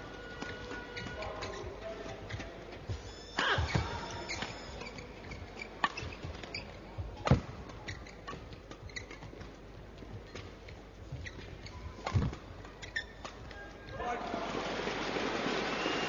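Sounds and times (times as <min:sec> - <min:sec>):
shoes squeaking on court: 0:00.0 - 0:14.0
rackets hitting shuttlecock: 0:07.2 - 0:09.5.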